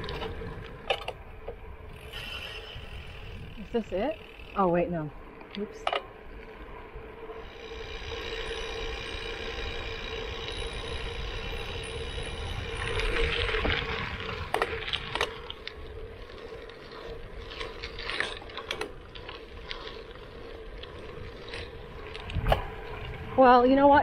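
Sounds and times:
bike rattling over bumps: 0:00.0 - 0:24.0
tyre noise on gravel: 0:07.5 - 0:23.5
wind rush: 0:10.8 - 0:15.3, 0:21.1 - 0:24.0.

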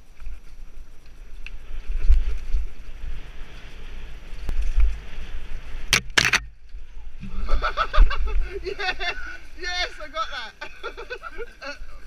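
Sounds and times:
wind buffeting microphone: 0:00.0 - 0:12.0
bike rattling over bumps: 0:00.3 - 0:08.0
tyres hissing on dirt: 0:06.8 - 0:12.0.

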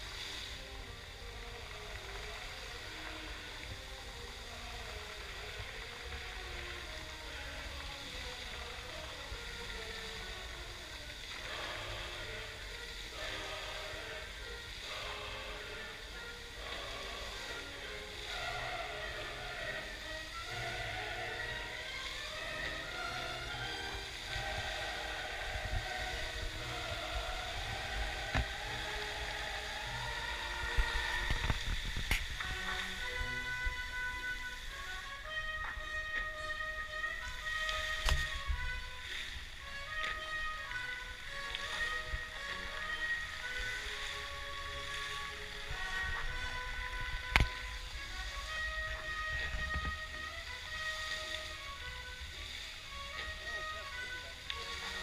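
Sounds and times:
fountain water jets splashing: 0:00.0 - 0:55.0
sustained music notes: 0:00.0 - 0:55.0
low rumble: 0:22.4 - 0:34.8
low thumps: 0:24.3 - 0:34.4.

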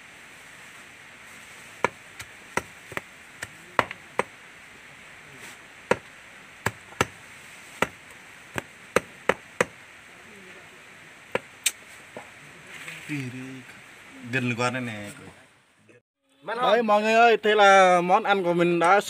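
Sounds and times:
knife chopping meat: 0:01.8 - 0:04.3, 0:06.7 - 0:07.2, 0:07.8 - 0:09.8.

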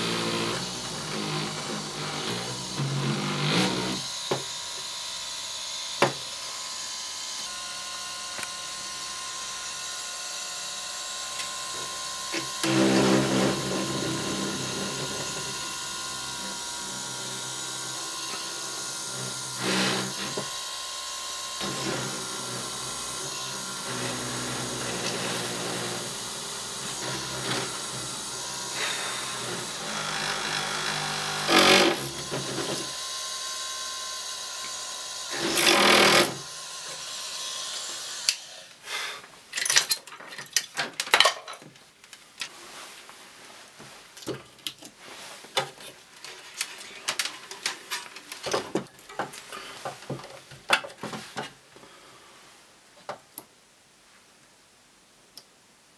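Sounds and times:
small electric power tool running: 0:00.0 - 0:38.7.

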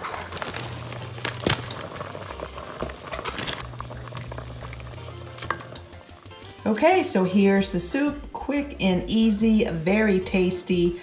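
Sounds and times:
soup bubbling in a pot: 0:00.0 - 0:06.7.

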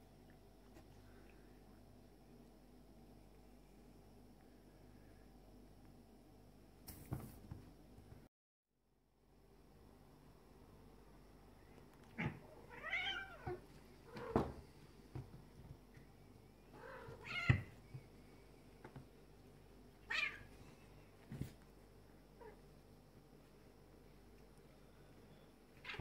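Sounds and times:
cats meowing: 0:12.1 - 0:14.6, 0:16.7 - 0:17.9, 0:20.0 - 0:20.6.

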